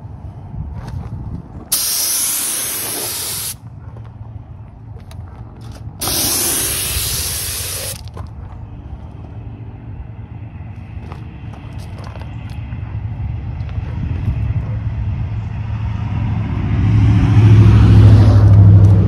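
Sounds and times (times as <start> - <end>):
spray gun hissing: 1.7 - 3.6, 6.0 - 8.0.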